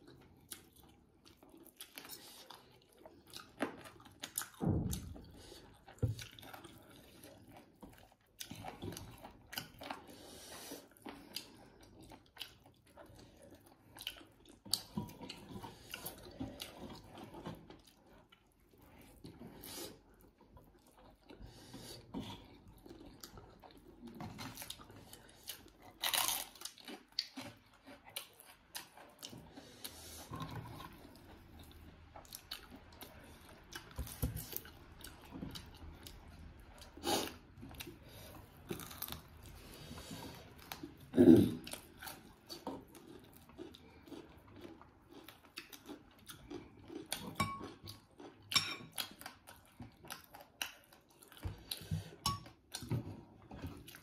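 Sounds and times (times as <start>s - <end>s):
chewing and biting food: 0.0s - 54.0s
food crunching: 22.3s - 29.6s, 30.3s - 54.0s.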